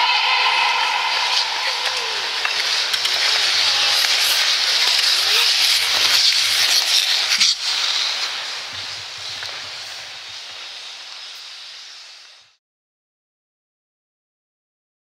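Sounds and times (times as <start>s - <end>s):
skate blades scraping on ice: 1.2s - 12.6s.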